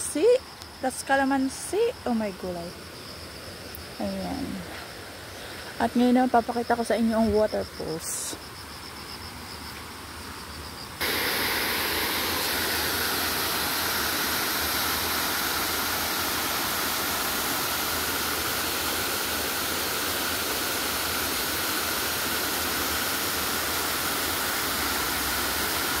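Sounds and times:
waterfall rushing over rocks: 11.0s - 26.0s.

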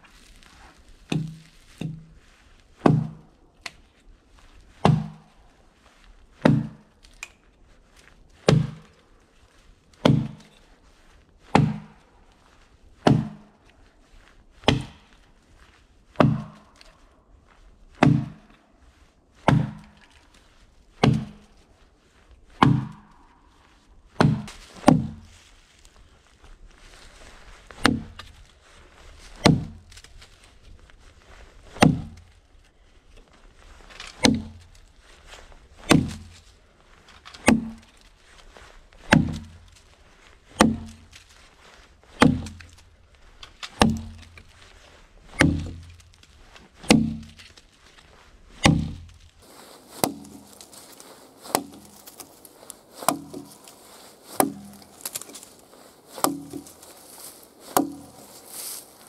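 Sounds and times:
axe chopping log: 1.1s - 2.1s, 2.8s - 3.8s, 4.8s - 5.3s, 6.4s - 7.4s, 8.4s - 9.0s, 10.0s - 10.5s, 11.5s - 12.0s, 13.0s - 13.6s, 14.6s - 15.2s, 16.2s - 16.9s, 18.0s - 18.6s, 19.4s - 20.2s, 21.0s - 21.6s, 22.6s - 23.2s, 24.2s - 25.4s, 27.7s - 28.3s, 29.3s - 30.0s, 31.7s - 32.4s, 34.0s - 34.8s, 35.8s - 36.4s, 37.1s - 38.0s, 39.0s - 39.8s, 40.5s - 41.2s, 42.1s - 44.5s, 45.2s - 47.6s, 48.5s - 58.9s.

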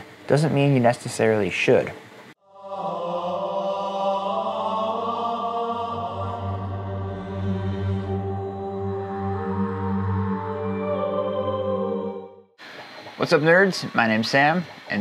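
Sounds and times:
sustained droning chords: 2.4s - 12.6s
deep low drone: 5.6s - 12.5s.

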